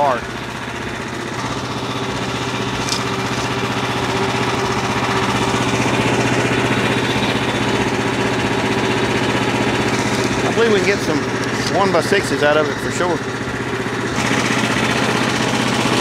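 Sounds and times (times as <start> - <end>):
small engine running steadily: 0.0 - 16.0.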